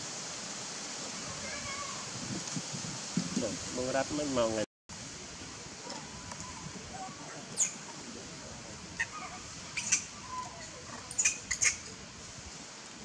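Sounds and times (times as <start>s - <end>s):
baby monkey squeaking: 9.8s - 11.9s.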